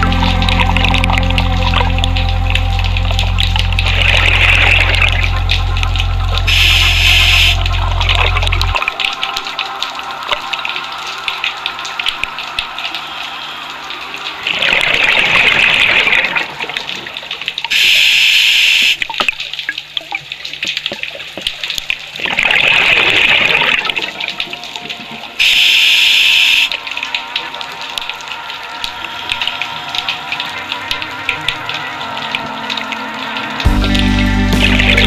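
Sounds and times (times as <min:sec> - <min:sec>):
exhaled bubbles gurgling underwater: 0:00.0 - 0:17.7.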